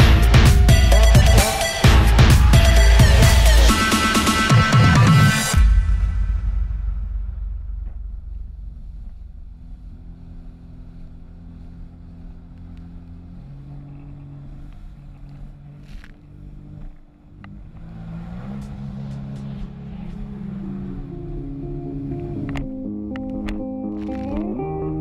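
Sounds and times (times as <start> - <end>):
jet ski engine drone: 8.5 - 23.2.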